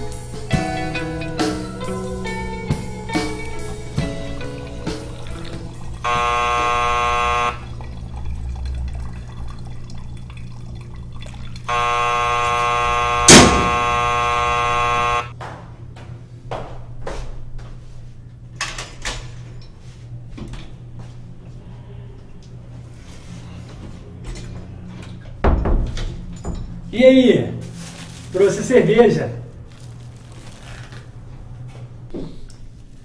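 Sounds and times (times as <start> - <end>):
doorbell buzzer: 6.0 - 7.7, 11.7 - 15.3
sharp knock: 13.3 - 13.8.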